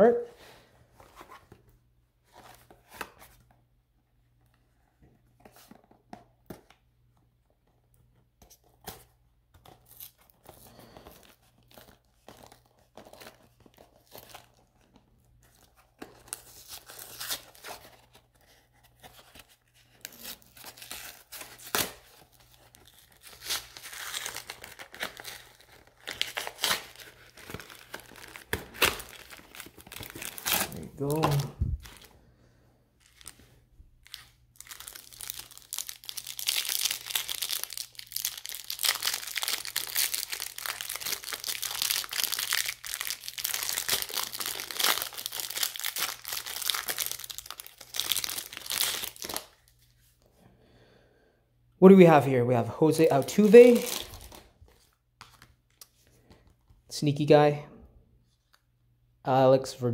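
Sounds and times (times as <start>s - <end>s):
cardboard box tearing and crinkling: 20.0s - 32.0s.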